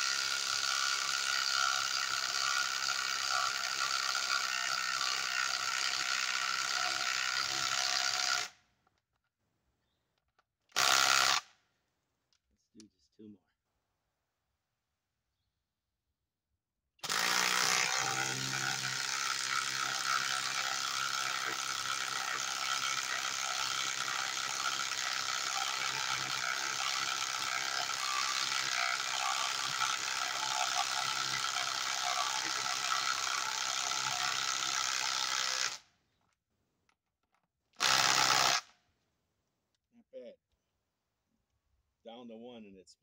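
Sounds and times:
impact driver hammering screw: 0:17.0 - 0:33.2, 0:37.8 - 0:38.7.

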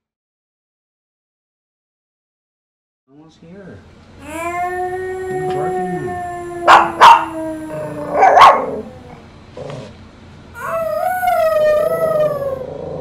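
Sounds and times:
dog howling: 0:04.2 - 0:09.3, 0:10.6 - 0:13.0
small dog barking sharply: 0:06.7 - 0:07.3, 0:08.2 - 0:08.8.

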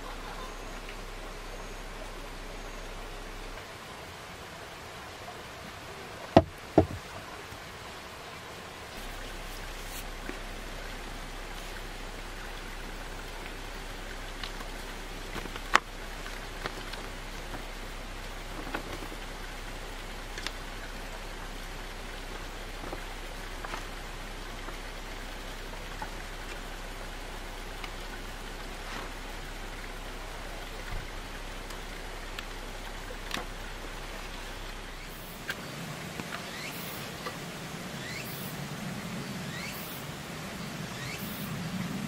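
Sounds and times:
steady rushing background noise: 0:00.0 - 0:42.0
sharp tap on wood: 0:06.4 - 0:07.0.

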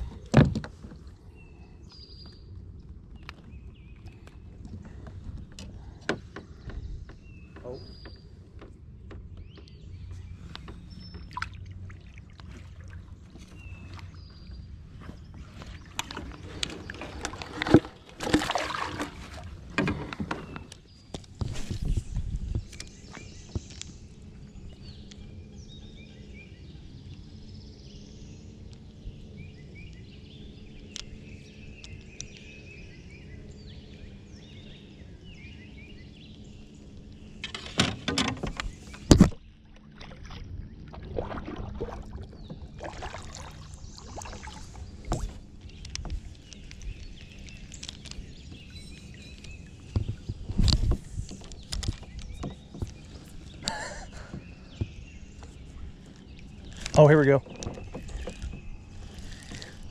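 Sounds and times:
rustling of fishing tackle: 0:44.6 - 0:54.2, 0:55.3 - 0:59.9.

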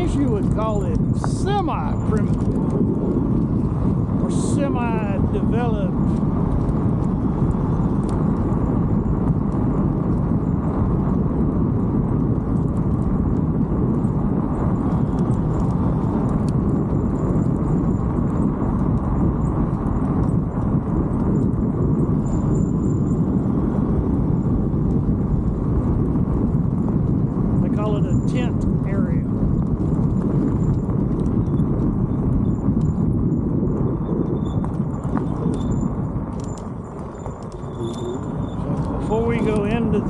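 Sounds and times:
bicycle tyres rolling on pavement: 0:00.0 - 0:40.0
wind noise on microphone: 0:00.0 - 0:40.0
squeaky bicycle brake: 0:34.1 - 0:38.9.

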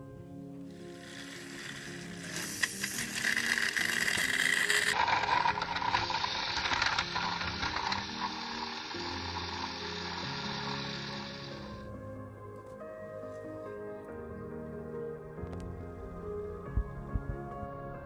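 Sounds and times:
music with low held notes: 0:00.0 - 0:18.0
toy train motor whirring: 0:00.7 - 0:11.8.

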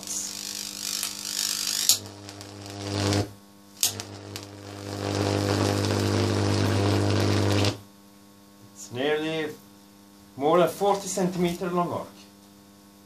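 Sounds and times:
electric arc buzzing and crackling: 0:00.0 - 0:07.9
arc striking snap: 0:00.4 - 0:07.8.

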